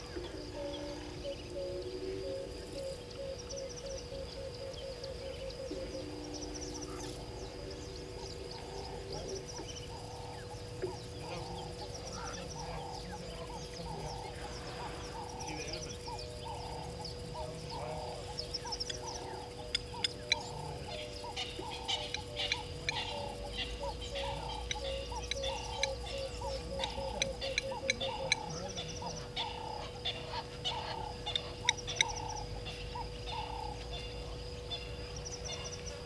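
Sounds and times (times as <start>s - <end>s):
birds calling: 0.0s - 36.0s
steady hum: 0.0s - 36.0s
shrill bird calls: 18.1s - 36.0s.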